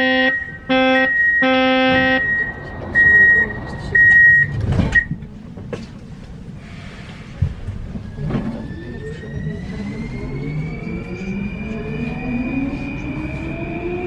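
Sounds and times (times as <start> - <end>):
door warning beep: 0.0 - 5.2
low train rumble: 0.0 - 14.0.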